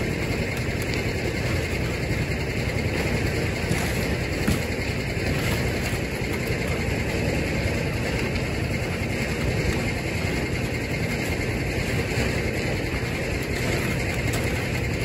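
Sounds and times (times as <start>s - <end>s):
engine idling: 0.0s - 15.0s.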